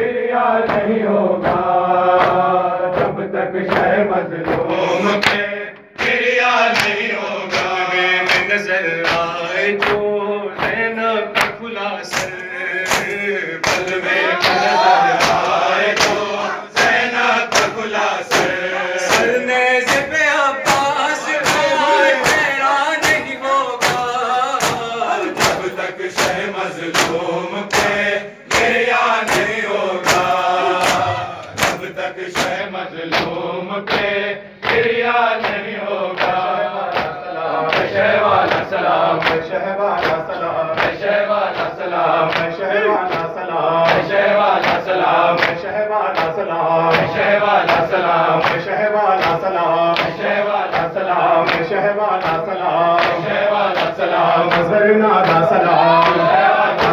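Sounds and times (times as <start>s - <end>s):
men chanting in unison: 0.0s - 56.9s
hand slaps on chest: 6.8s - 7.7s, 11.4s - 14.6s, 15.2s - 16.2s, 16.8s - 19.3s, 20.7s - 34.8s.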